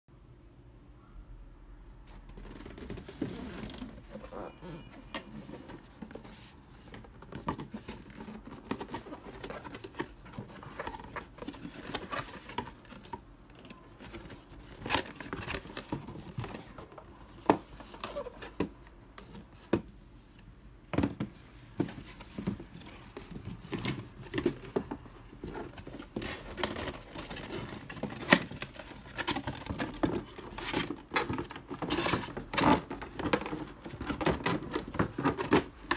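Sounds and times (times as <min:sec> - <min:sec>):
cardboard box scraping and creasing: 0:02.3 - 0:13.1.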